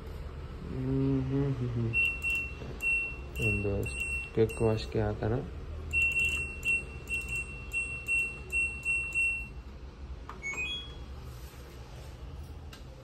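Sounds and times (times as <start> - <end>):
control panel beeping: 1.9 - 4.9, 5.9 - 9.6.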